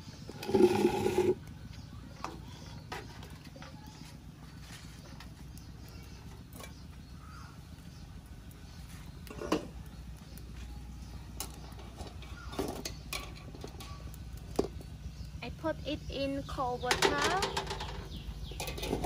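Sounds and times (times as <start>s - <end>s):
boiling water: 0.0s - 2.4s
low steady rumble: 0.0s - 19.0s.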